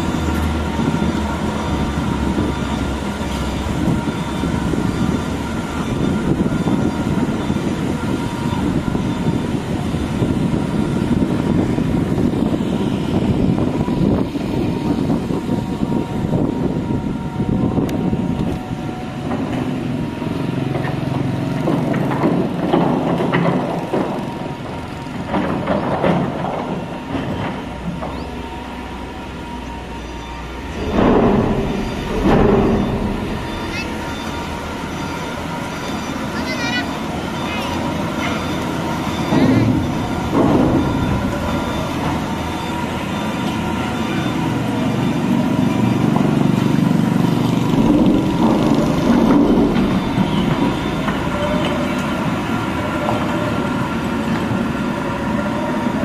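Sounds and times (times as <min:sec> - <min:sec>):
excavator diesel engine running: 0:00.0 - 0:56.0
knocks and scrapes: 0:30.7 - 0:35.2.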